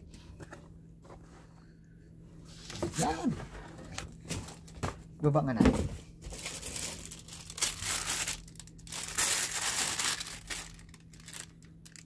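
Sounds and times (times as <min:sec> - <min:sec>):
plastic bag crinkling: 0:06.3 - 0:12.0.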